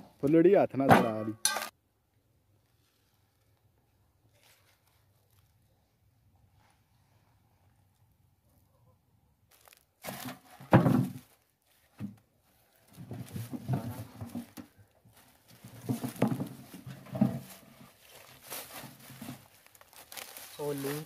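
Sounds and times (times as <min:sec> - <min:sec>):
dry leaves and straw rustling: 0:02.6 - 0:06.0, 0:09.5 - 0:21.0.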